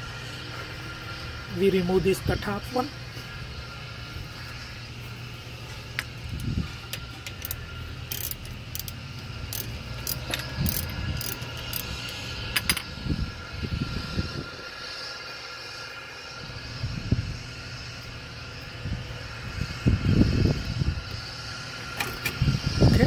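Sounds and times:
steady low hum: 0.0s - 23.0s
metallic ratchet clicks and clinks: 7.2s - 12.8s.

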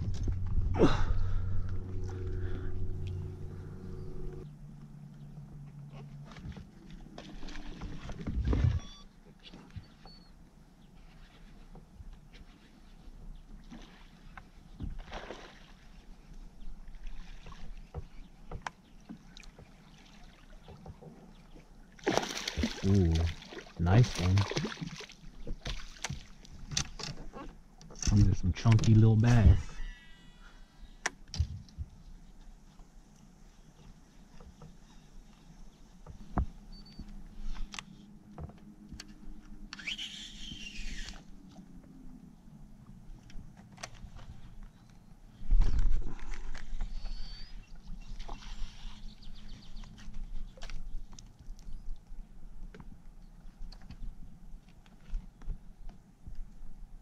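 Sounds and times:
fish splashing at water surface: 22.0s - 25.1s
fishing reel spool whirring: 39.7s - 41.3s.

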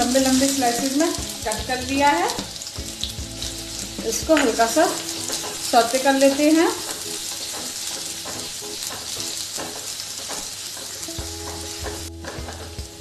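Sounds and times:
onions sizzling in hot oil: 0.0s - 13.0s
spatula scraping pan: 5.0s - 12.8s.

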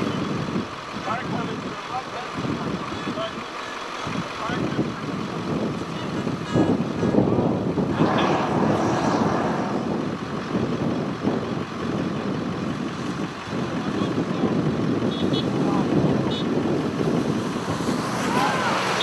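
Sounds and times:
wind buffeting microphone: 4.6s - 18.5s.

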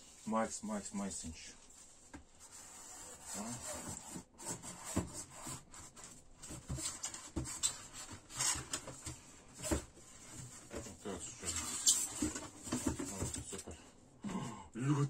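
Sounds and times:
cardboard packaging scraping and rustling: 2.4s - 13.5s.

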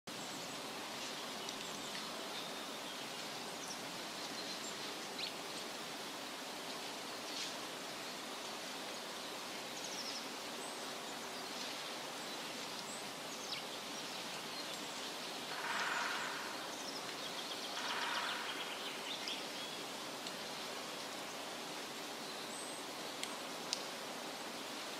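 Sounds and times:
outdoor background noise: 0.1s - 24.9s
rough bird calls: 15.3s - 19.6s
high bird chirps: 15.5s - 19.3s.

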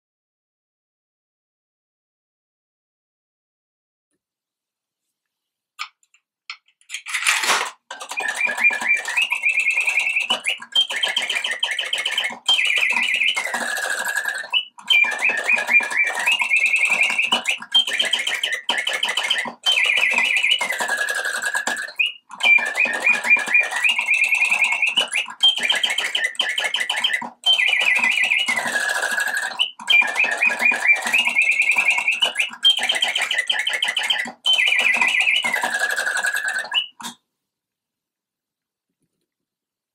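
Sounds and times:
mechanical bird whistle trilling: 6.9s - 37.2s.

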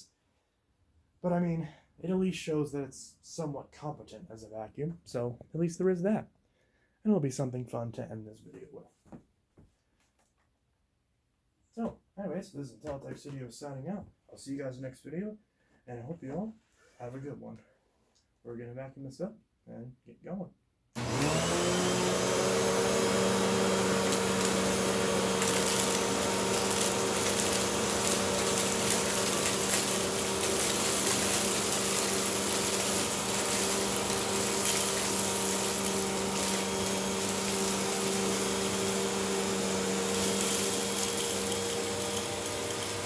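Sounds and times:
debris rattling in vacuum: 21.0s - 43.0s
vacuum cleaner running: 21.0s - 43.0s.

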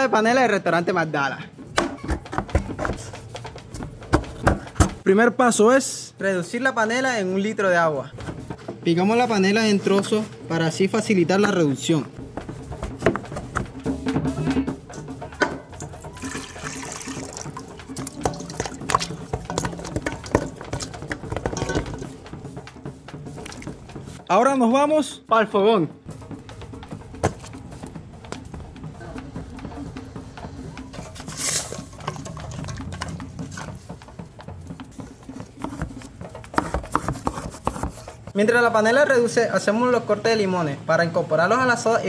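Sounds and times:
faint background music: 0.0s - 42.0s
water pouring into pot: 15.8s - 20.5s
pot and utensil knocks: 18.0s - 22.1s.

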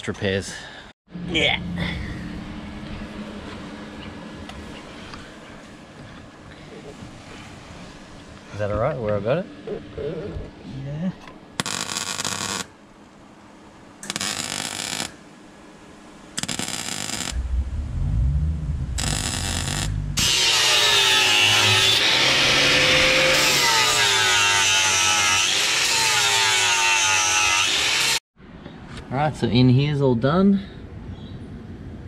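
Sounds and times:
welding bursts: 11.6s - 12.7s, 14.0s - 15.2s, 16.4s - 17.4s, 19.0s - 22.0s
angle grinder grinding metal: 18.9s - 28.2s.

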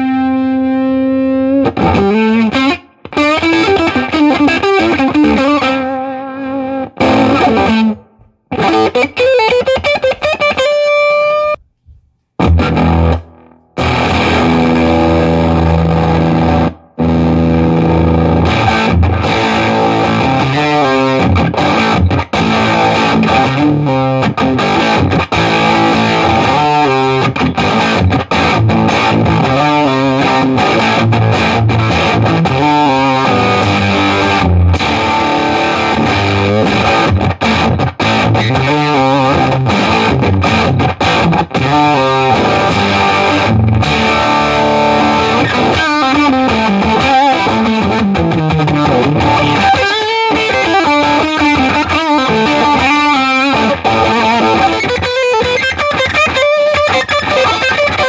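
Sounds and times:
fuzzy electric guitar: 0.0s - 58.0s.

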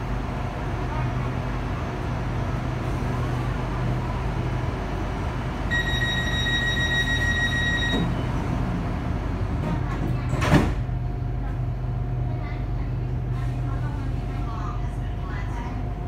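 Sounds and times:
train interior hum: 0.0s - 16.0s
high electronic warning tone: 5.7s - 8.1s.

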